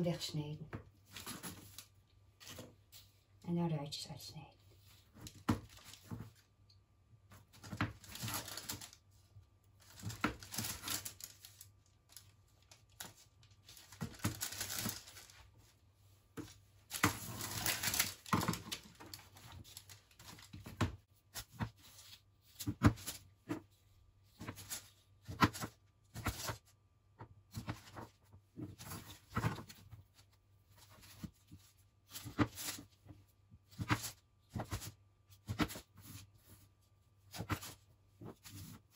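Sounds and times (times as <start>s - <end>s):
baking paper rustling: 7.4s - 26.7s.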